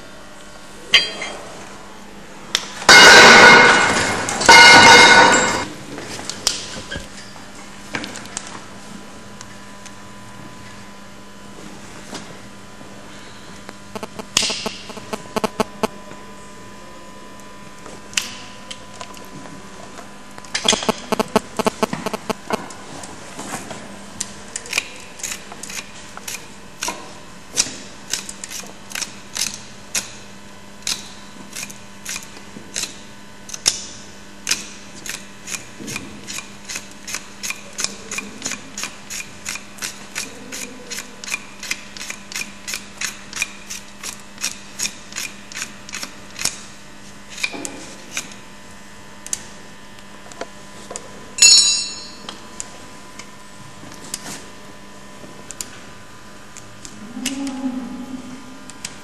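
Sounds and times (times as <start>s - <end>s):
ringing metal clank: 0.9s - 1.5s, 2.9s - 5.7s, 51.4s - 52.3s.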